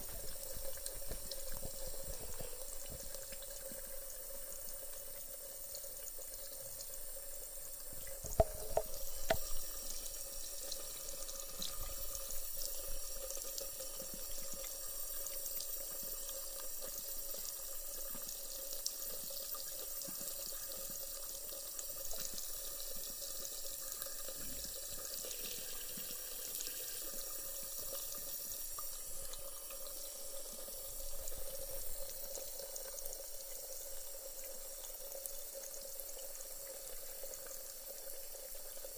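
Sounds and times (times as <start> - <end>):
tap water running into sink: 0.0 - 38.9.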